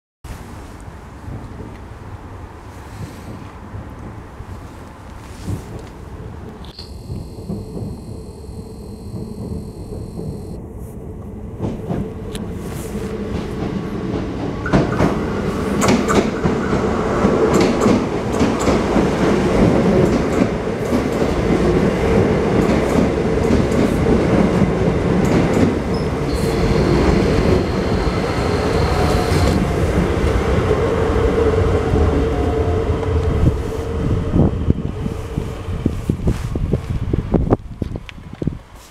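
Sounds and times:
electric train rumbling: 0:00.3 - 0:38.8
constant train hum: 0:00.3 - 0:38.9
thin high steady tone: 0:06.7 - 0:10.6, 0:26.3 - 0:29.6.

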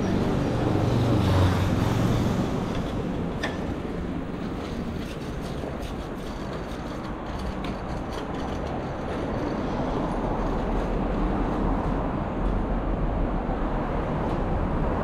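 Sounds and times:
vehicle rumbling past: 0:00.0 - 0:04.4.

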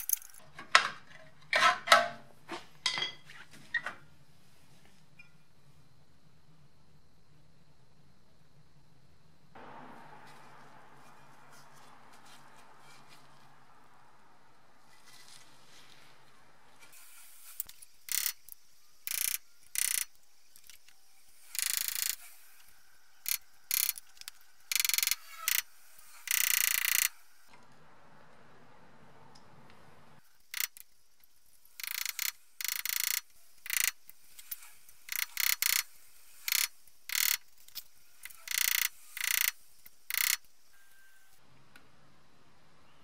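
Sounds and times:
screwdriver scraping metal: 0:17.6 - 0:20.8, 0:31.8 - 0:40.4.

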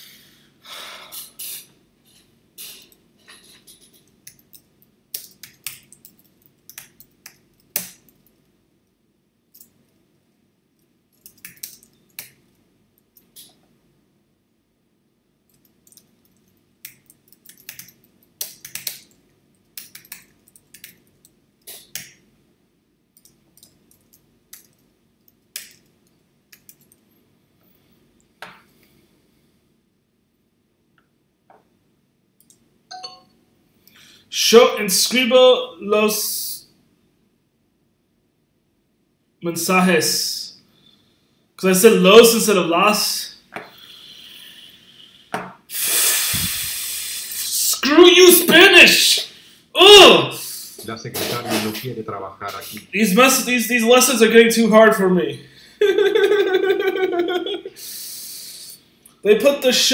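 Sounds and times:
computer keyboard typing: 0:04.2 - 0:08.3, 0:11.2 - 0:12.4, 0:15.5 - 0:22.1, 0:26.5 - 0:27.0.

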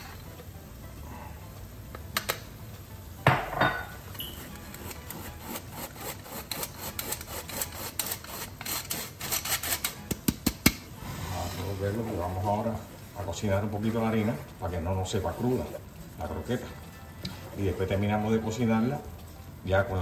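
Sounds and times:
flour sifted through sieve: 0:11.0 - 0:20.0.

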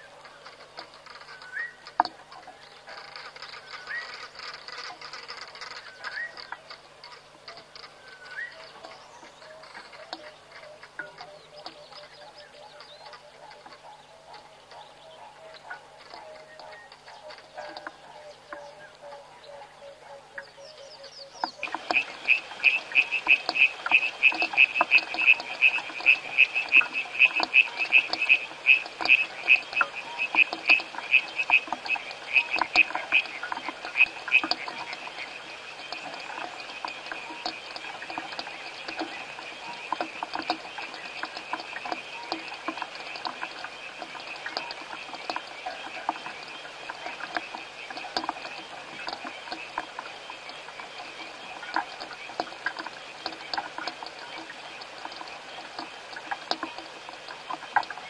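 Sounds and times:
frogs chorus: 0:07.5 - 0:58.0
high-pitched rapid frog call: 0:21.6 - 0:58.0.

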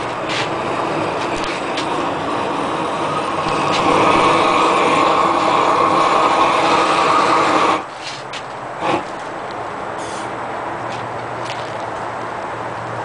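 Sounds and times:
roofing torch rushing flame: 0:00.0 - 0:10.4.

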